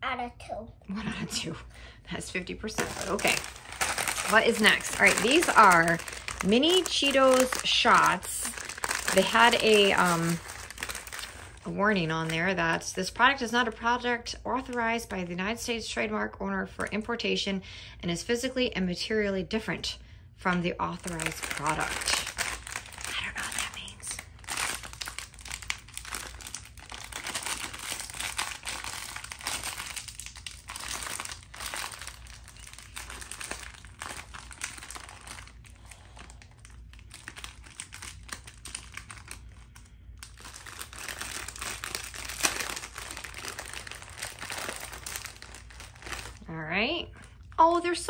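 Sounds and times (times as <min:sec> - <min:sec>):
foil snack bag crinkling: 0:02.2 - 0:13.8, 0:20.9 - 0:46.5.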